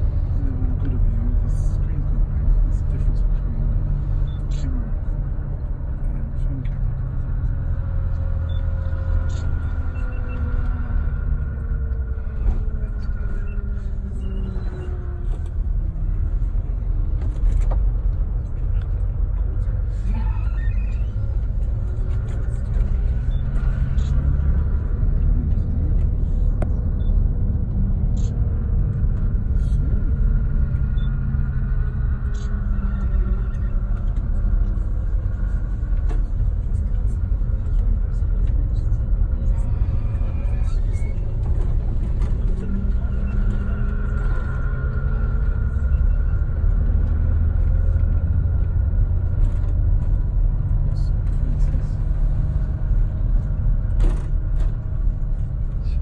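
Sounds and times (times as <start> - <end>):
engine and tyre rumble: 0.0 - 56.0.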